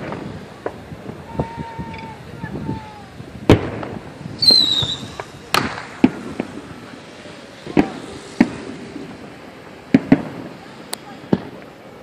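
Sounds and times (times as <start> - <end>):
fireworks and firecrackers banging: 0.0 - 12.0
high whistle falling in pitch: 4.4 - 5.1.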